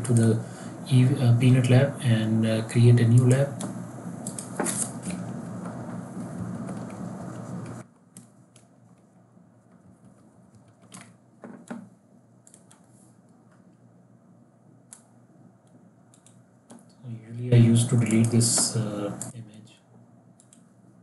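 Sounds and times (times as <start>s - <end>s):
low background hum: 0.0s - 21.0s
keyboard taps: 9.7s - 11.9s
mouse clicks: 12.4s - 12.9s, 14.9s - 17.0s, 20.4s - 20.7s.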